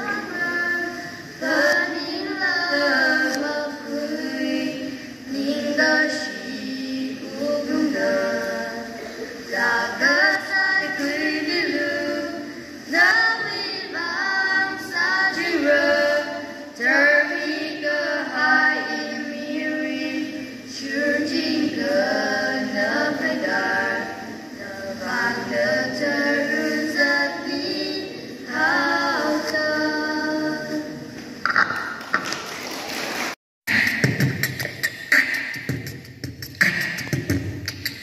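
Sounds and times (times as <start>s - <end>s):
girls singing together: 0.0s - 31.8s.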